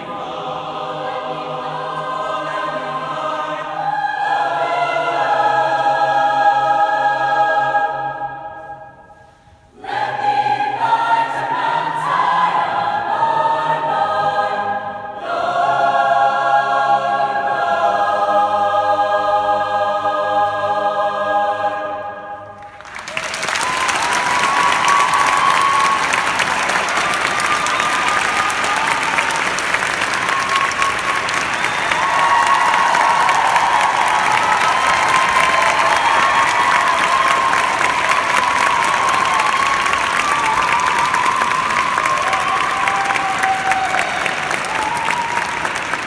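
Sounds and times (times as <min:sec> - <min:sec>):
choir singing sustained chords: 0:00.0 - 0:22.8
audience applause: 0:22.6 - 0:46.0.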